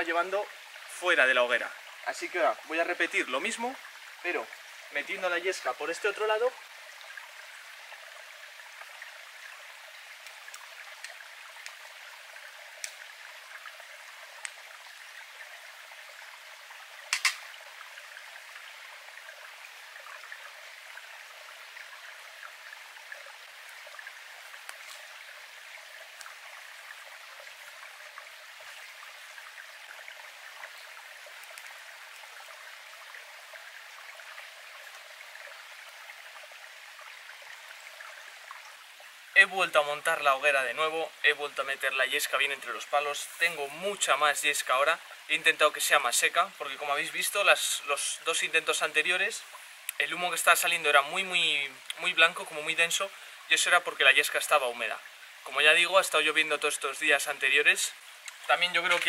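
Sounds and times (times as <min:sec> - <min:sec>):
stream running over rocks: 0:00.0 - 0:59.0
faint ticks: 0:10.2 - 0:11.8, 0:12.8 - 0:13.1, 0:14.4 - 0:14.6, 0:24.6 - 0:25.1, 0:30.6 - 0:32.3, 0:58.0 - 0:59.0
sharp click: 0:17.1 - 0:17.5.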